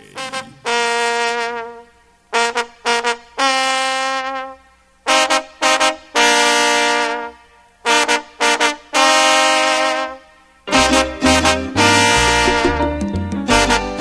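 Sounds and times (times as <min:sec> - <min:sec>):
cumbia music melodic lead: 0:00.0 - 0:14.0.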